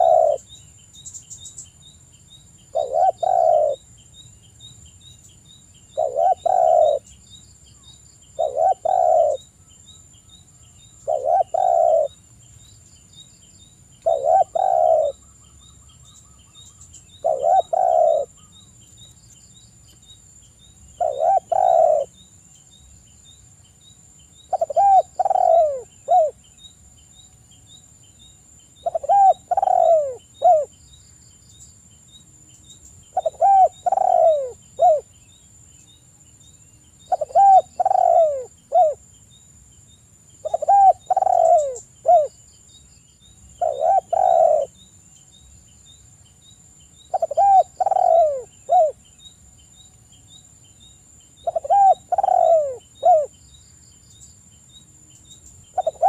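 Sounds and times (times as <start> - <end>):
dove cooing: 0.0 - 0.5, 2.7 - 3.8, 5.9 - 7.1, 8.4 - 9.5, 11.0 - 12.2, 14.0 - 15.2, 17.1 - 18.5, 21.0 - 22.1, 24.5 - 26.4, 28.8 - 30.7, 33.1 - 35.1, 37.1 - 39.0, 40.4 - 42.3, 43.6 - 44.8, 47.1 - 49.0, 51.4 - 53.4, 55.7 - 56.0.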